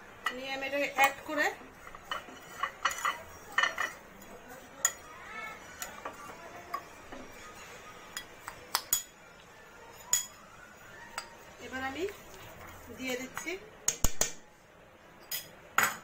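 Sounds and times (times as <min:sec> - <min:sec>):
metal spoon scraping a plate: 0:01.8 - 0:04.0.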